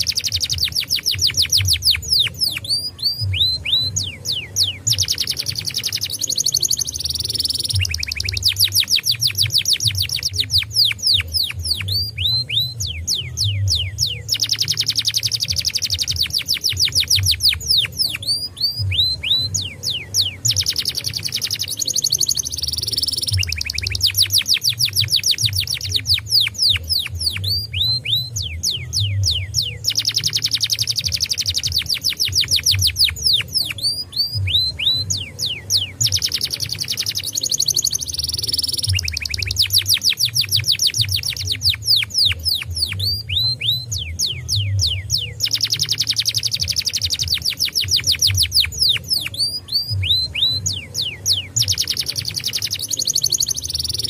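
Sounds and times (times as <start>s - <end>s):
canary singing trills: 0.0s - 54.0s.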